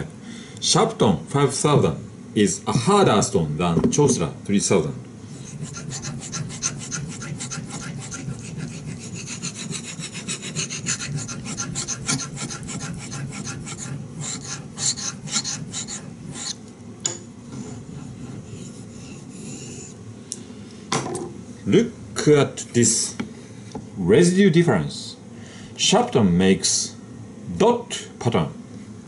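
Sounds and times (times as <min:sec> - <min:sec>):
knife rasping on whetstone: 0:05.3 - 0:16.6, 0:17.5 - 0:20.0.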